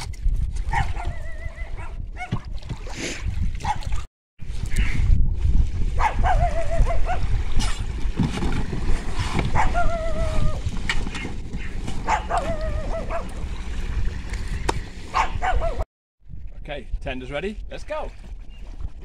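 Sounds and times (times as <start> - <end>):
dog whining: 9.5 - 10.6, 12.0 - 13.3
steady low rumble: 9.6 - 17.8.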